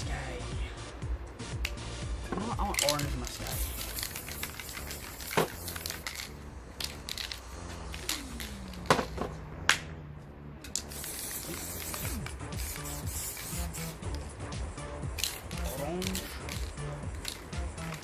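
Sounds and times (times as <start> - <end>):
spray cans knocking and clicking: 2.3 - 9.3, 10.7 - 13.8, 15.2 - 18.0
spray can hissing: 2.7 - 9.2, 10.7 - 14.3, 15.0 - 18.0.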